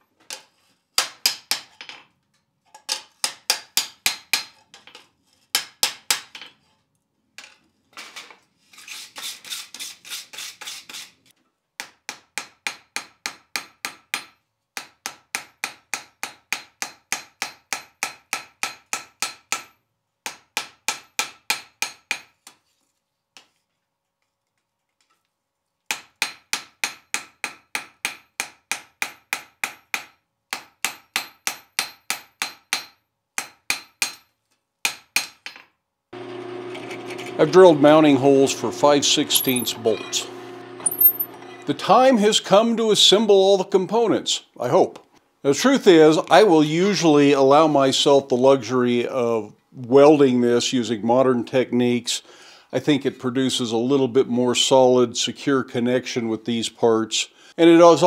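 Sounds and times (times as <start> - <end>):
hammer striking steel on anvil: 39.0 - 41.4
anvil ringing: 39.0 - 41.5.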